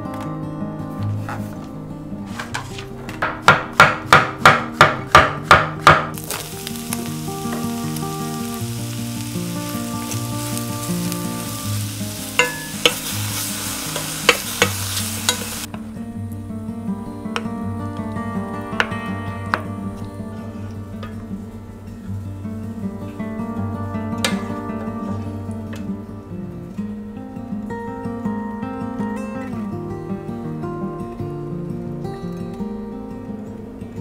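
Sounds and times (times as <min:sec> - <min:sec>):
mushrooms sizzling in frying pan: 0:03.5 - 0:15.8.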